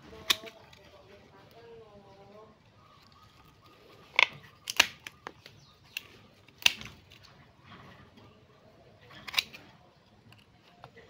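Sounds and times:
pruning shears snipping roots: 0.1 - 0.9, 4.1 - 7.3, 9.2 - 9.7.

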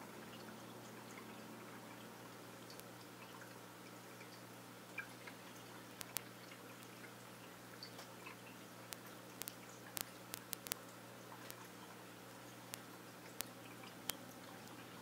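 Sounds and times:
aquarium low hum: 0.0 - 15.0
faint trickling water: 0.0 - 15.0
sharp ticks: 6.0 - 6.9, 8.9 - 10.8.

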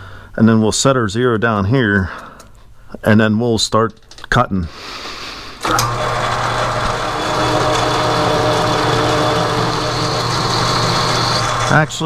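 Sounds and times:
metal lathe humming: 5.6 - 12.0.

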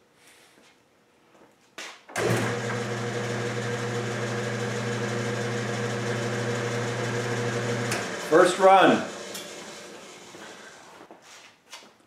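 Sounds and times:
metal lathe running: 2.2 - 10.8.

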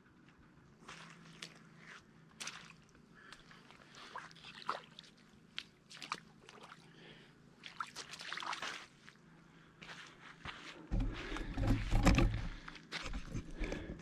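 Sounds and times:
shallow water splashing: 3.8 - 7.0, 7.6 - 9.0.

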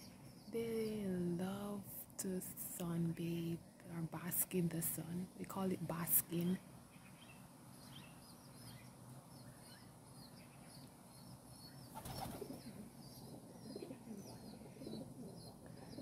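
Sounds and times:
small birds chirping: 0.0 - 1.4, 2.8 - 16.0
pigeons cooing: 11.9 - 16.0.

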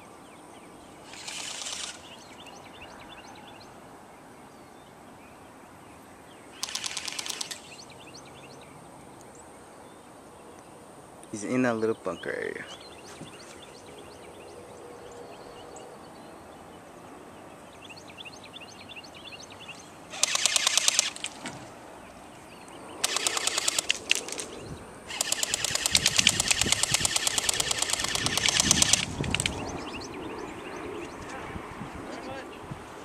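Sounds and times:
birds chirping faintly: 0.0 - 32.8
airsoft guns firing bursts: 1.1 - 2.2, 6.6 - 7.7, 20.1 - 21.4, 23.0 - 24.5, 25.1 - 29.6.

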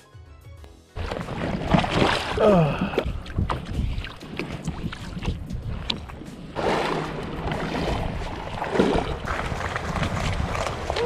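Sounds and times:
rush of water: 1.0 - 11.0
seawater sloshing and splashing: 1.0 - 11.0
wind noise: 3.0 - 11.0.

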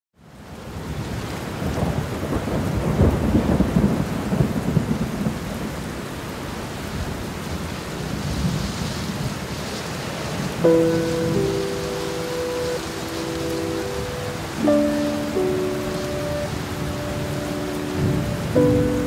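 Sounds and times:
steady rain: 0.2 - 19.0
rolling thunder: 1.5 - 5.9, 10.4 - 19.0.

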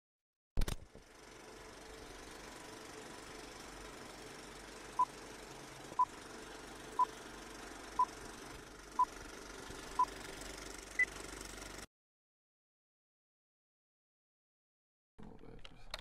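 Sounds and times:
projector rattle and hiss: 1.0 - 11.8.

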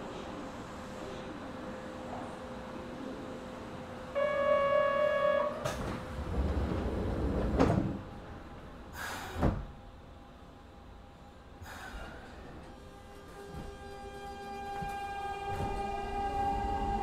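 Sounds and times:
train rumble: 0.0 - 10.6, 11.4 - 17.0
air hissing: 8.9 - 9.6.

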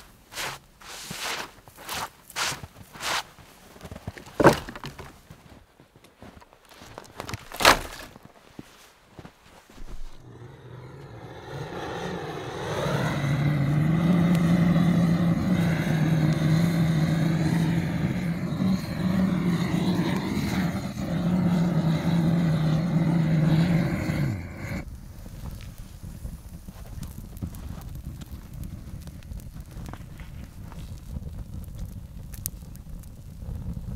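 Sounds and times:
jet torch flame rushing: 9.8 - 26.9.

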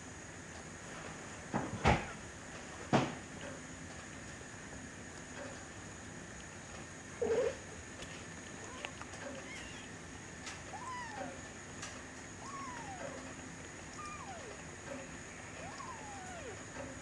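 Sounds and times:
kitten mewing: 8.6 - 10.0, 10.6 - 11.6, 12.4 - 17.0.

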